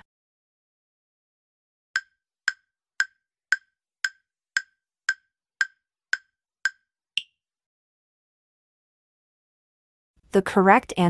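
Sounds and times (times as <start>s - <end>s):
countdown timer ticking: 2.0s - 6.8s.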